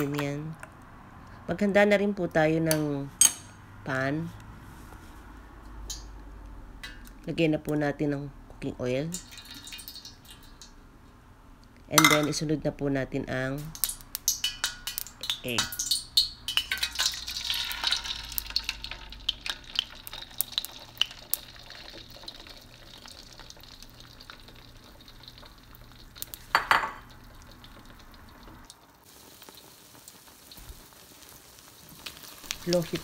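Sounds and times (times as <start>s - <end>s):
eggs sizzling in hot oil: 9.1s - 10.9s, 13.6s - 33.0s.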